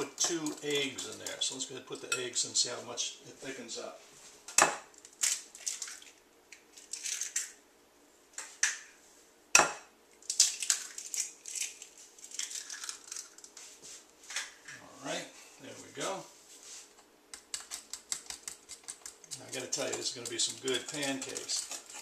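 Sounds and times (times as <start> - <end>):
eggshell crackling: 10.2 - 13.6, 17.3 - 22.0.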